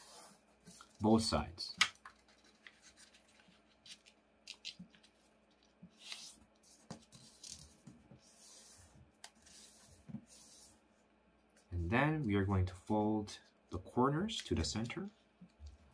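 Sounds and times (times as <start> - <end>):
paper being folded and creased: 1.9 - 10.7.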